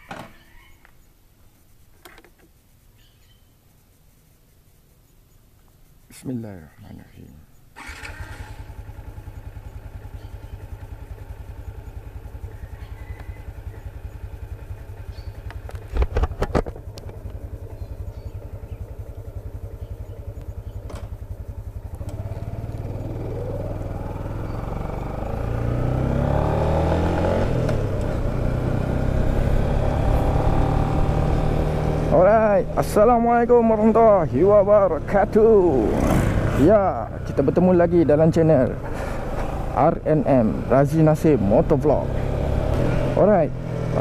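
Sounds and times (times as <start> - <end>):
motorcycle engine idling and revving: 7.5 - 44.0.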